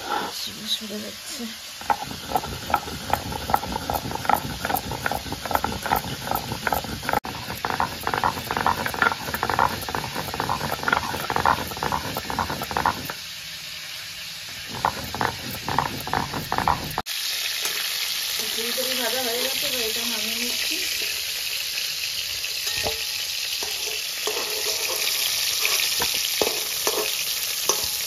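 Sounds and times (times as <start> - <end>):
frying sizzle: 0.0 - 28.0
stone grinding seeds on slab: 1.8 - 13.2, 14.5 - 17.0, 24.2 - 27.8.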